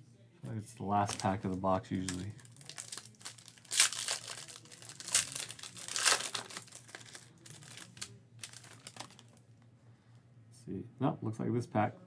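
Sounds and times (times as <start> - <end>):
foil wrapper crinkling and tearing: 1.0 - 9.4.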